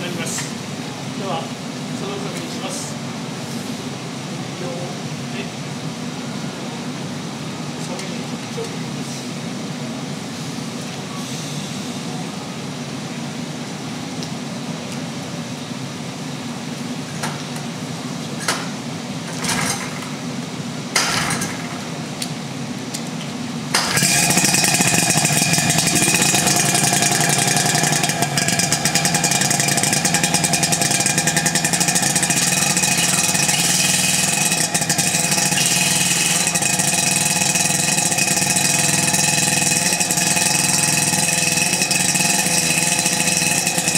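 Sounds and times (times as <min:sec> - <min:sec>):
pump engine running: 0:17.4 - 0:22.2, 0:23.7 - 0:43.9
water jet spraying: 0:23.8 - 0:38.0.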